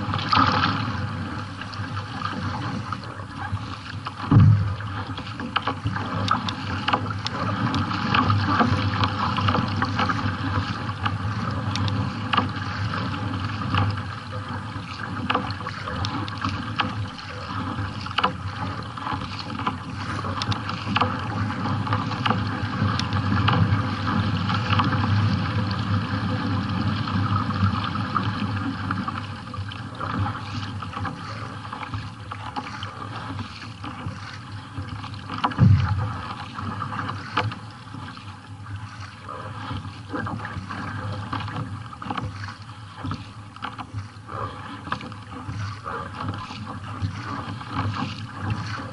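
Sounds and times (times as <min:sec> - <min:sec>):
water splashing along kayak hull: 0:00.0 - 0:48.9.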